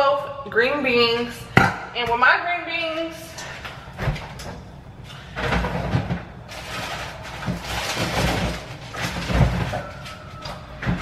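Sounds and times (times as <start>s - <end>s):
items handled in refrigerator: 2.8s - 11.0s
refrigerator door opening: 3.9s - 11.0s.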